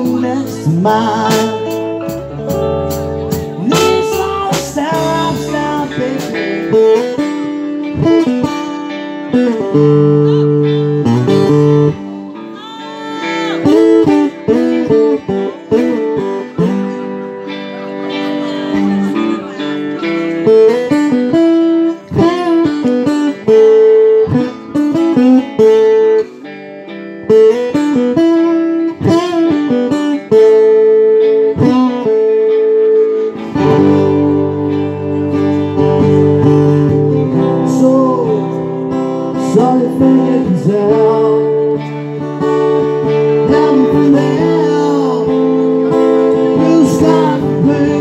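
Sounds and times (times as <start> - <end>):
low bass notes: 0.0 - 12.1, 29.0 - 48.0
lead guitar sliding notes: 0.0 - 48.0
rock band playing: 0.0 - 48.0
strummed acoustic guitar: 0.0 - 48.0.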